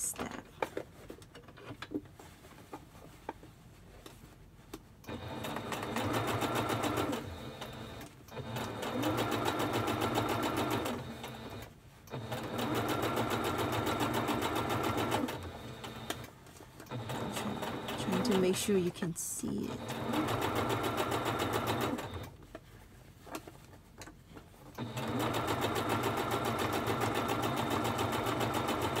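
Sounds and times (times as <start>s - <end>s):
sewing machine stitching: 5.1s - 18.9s, 19.6s - 22.4s, 24.8s - 29.0s.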